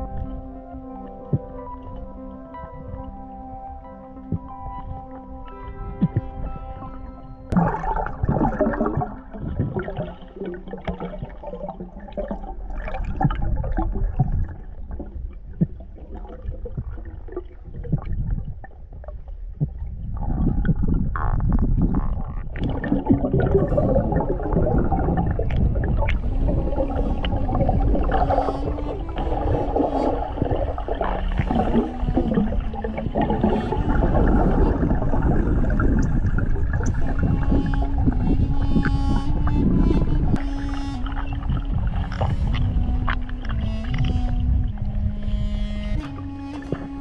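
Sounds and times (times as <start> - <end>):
underwater rumbling and gurgling: 0.0 - 47.0
bubbling: 7.5 - 47.0.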